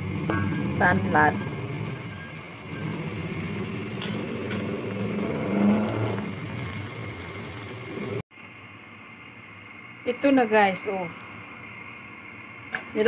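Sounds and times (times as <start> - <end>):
engine rumble: 0.0 - 8.3.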